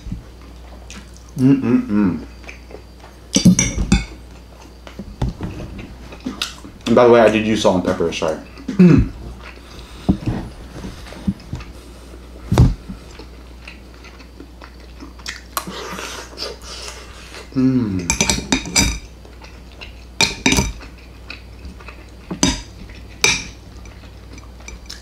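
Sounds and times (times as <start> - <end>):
cutlery clinking on ceramic plate: 18.1 - 19.1, 20.2 - 20.8, 22.3 - 25.0.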